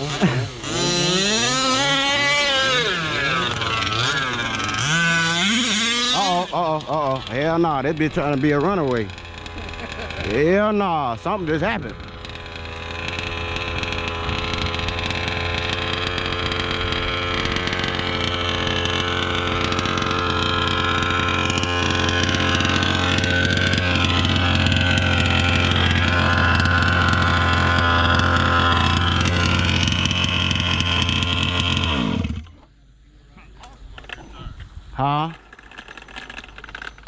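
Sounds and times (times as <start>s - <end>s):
two-stroke engine running fast: 0.0s - 32.7s, 35.3s - 37.0s.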